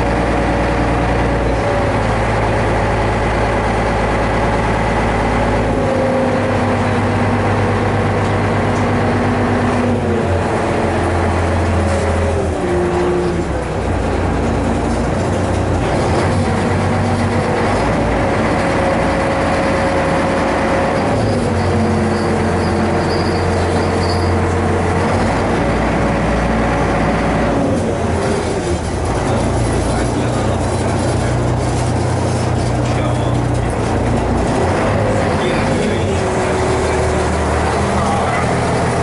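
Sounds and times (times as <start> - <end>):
heavy engine running: 0.0 - 39.0.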